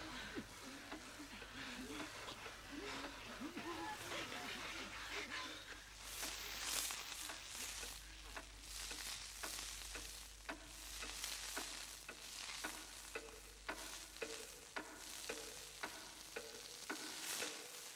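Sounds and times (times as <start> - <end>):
crackling hiss: 0.0 - 17.9.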